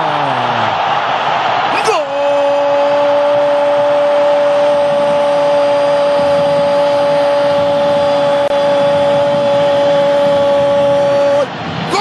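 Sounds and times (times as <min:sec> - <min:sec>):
stadium crowd cheering: 0:00.0 - 0:12.0
long steady pitched tone: 0:02.2 - 0:11.5.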